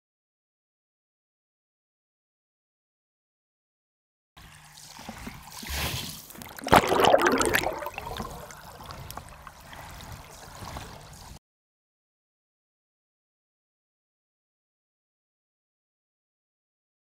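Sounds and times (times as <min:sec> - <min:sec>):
water sloshing underwater: 0:04.8 - 0:11.4.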